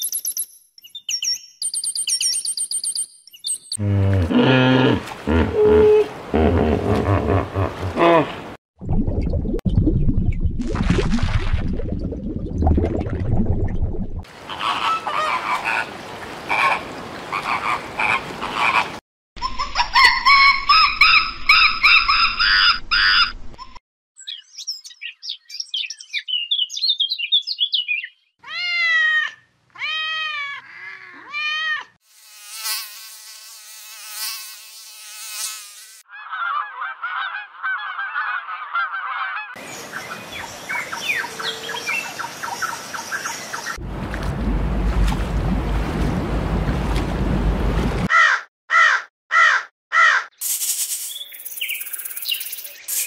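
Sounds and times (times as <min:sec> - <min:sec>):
rising and falling animal calls: 0:03.8 - 0:08.6, 0:14.4 - 0:19.0, 0:19.7 - 0:23.4, 0:36.1 - 0:39.6.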